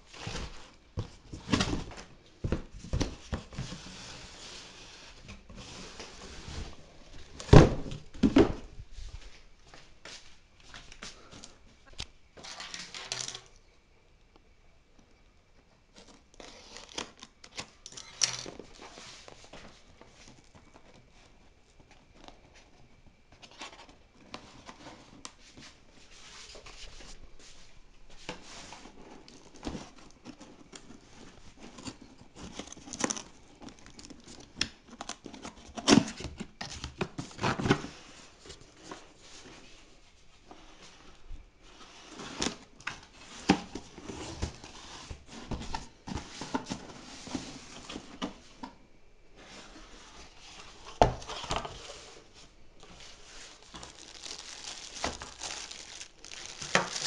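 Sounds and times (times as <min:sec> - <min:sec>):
cardboard scraping and rustling: 0:00.1 - 0:09.3, 0:28.1 - 0:48.8, 0:49.4 - 0:57.0.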